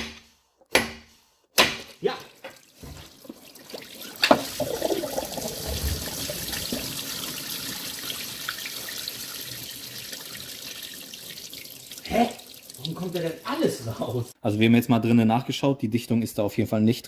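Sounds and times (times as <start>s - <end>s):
coolant pouring and splashing: 2.3s - 13.7s.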